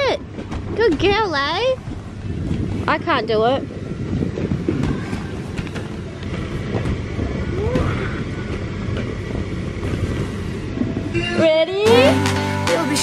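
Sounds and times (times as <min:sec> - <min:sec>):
air blower rumbling: 0:00.0 - 0:13.0.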